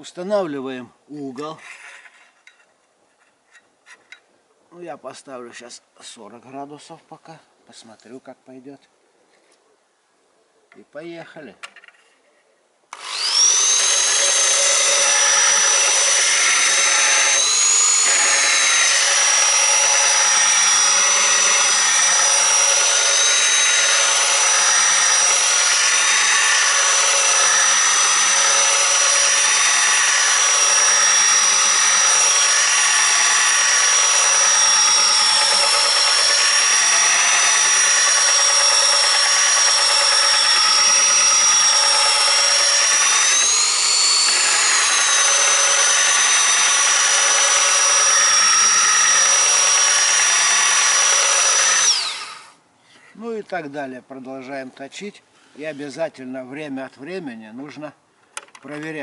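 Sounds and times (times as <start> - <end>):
electric motor whining: 12.9 - 52.5.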